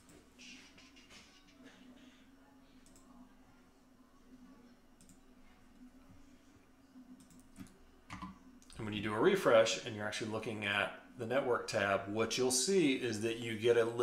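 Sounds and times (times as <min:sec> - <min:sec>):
faint room hum: 0:00.0 - 0:14.0
computer mouse clicks: 0:02.8 - 0:03.1, 0:05.0 - 0:05.2, 0:07.2 - 0:08.8.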